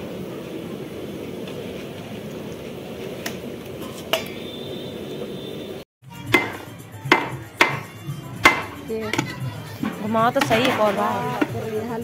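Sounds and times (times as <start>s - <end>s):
paddle clinking against metal pot: 6.2s - 11.8s
paddle churning in a pot: 6.3s - 12.0s.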